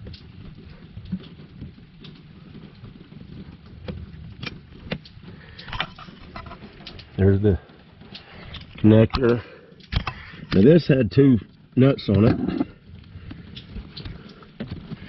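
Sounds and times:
plastic clicks and rattles: 3.8s - 7.2s, 8.0s - 10.7s.

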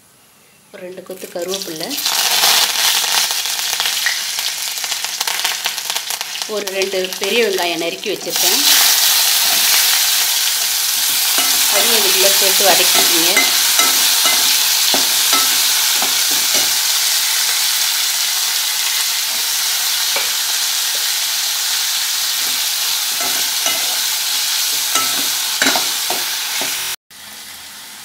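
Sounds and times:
onions sizzling in oil: 0.9s - 28.0s
metal ladle scraping a pan: 8.6s - 17.8s, 22.3s - 26.8s.

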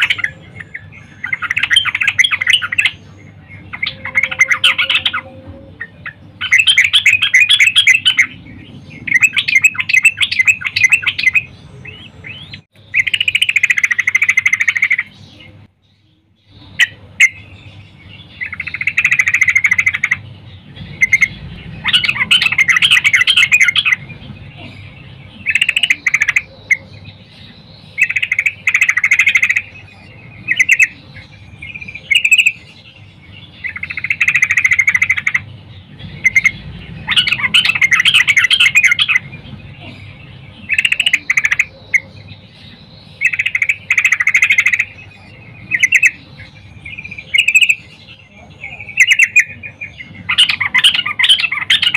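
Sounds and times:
bird singing chattering bursts: 0.0s - 51.9s.

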